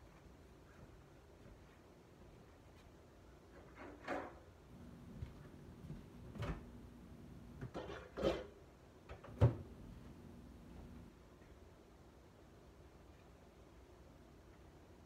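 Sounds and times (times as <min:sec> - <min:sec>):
faint steady hum: 0:00.0 - 0:15.0
kitchen items knocking and clunking: 0:07.6 - 0:08.6.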